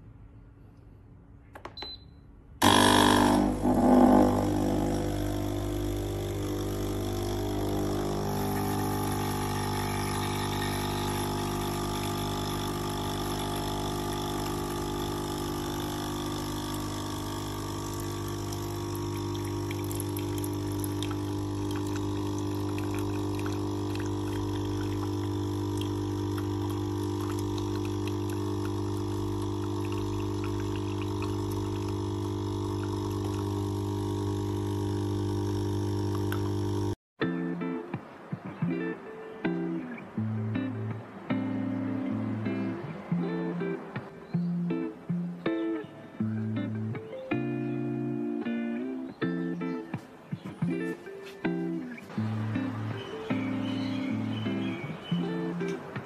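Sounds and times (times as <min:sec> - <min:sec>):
liquid hissing into cup: 0:02.6 - 0:36.9
coffee machine pump humming: 0:02.6 - 0:37.0, 0:52.2 - 0:55.9.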